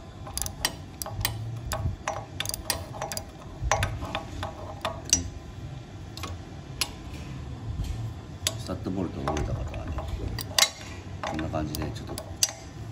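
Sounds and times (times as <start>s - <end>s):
ratchet wrench clicking: 0.0s - 5.3s, 10.3s - 12.7s.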